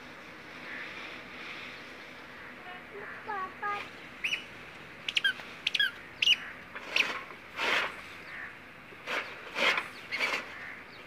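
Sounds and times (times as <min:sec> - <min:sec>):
small birds chirping: 0:00.6 - 0:11.0.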